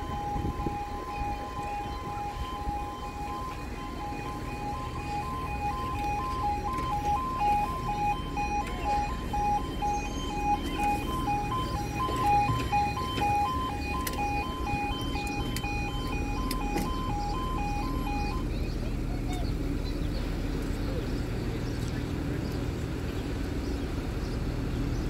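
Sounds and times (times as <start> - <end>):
electronic two-tone alarm: 0.0 - 18.5.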